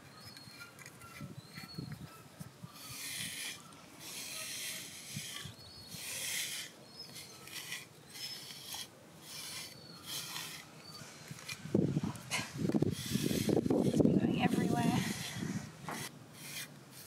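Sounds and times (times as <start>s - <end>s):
brush raking through dog fur: 2.8s - 11.6s, 12.9s - 17.0s.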